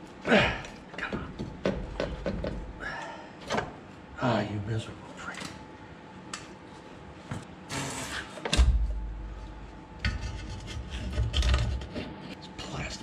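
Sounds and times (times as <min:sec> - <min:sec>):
tools knocking and scraping: 0:10.0 - 0:12.3.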